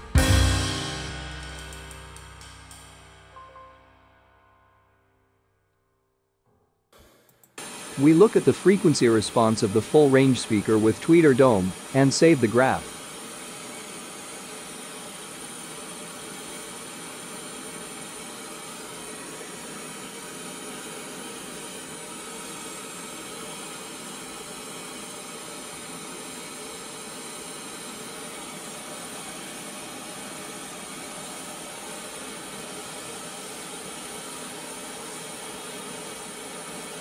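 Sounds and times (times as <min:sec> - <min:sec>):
speaker playing test noise hiss: 0:00.0 - 0:03.4, 0:07.6 - 0:14.4.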